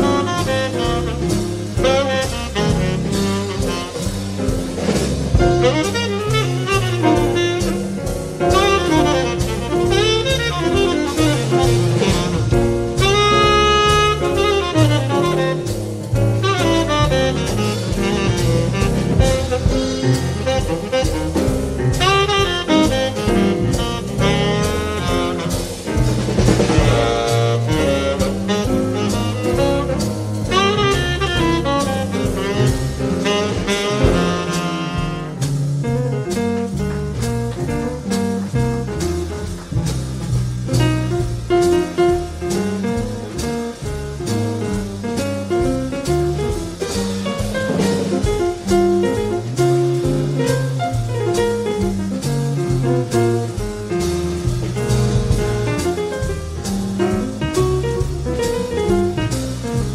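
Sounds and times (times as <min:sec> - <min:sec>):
saxophone melody: 0:00.0 - 0:04.2, 0:05.4 - 0:15.8, 0:16.4 - 0:25.8, 0:26.8 - 0:35.6
drum kit: 0:00.0 - 0:59.9
upright bass: 0:00.0 - 0:59.9.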